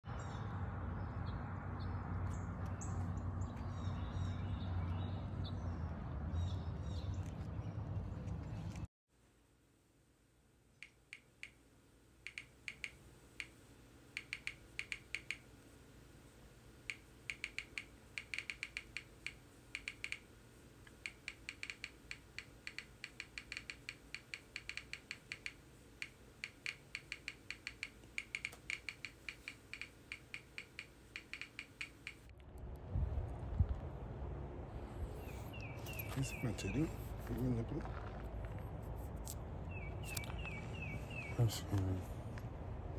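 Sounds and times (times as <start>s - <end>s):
low steady hum: 0.1s - 42.9s
faint keyboard typing clicks: 12.2s - 15.5s, 16.9s - 32.3s.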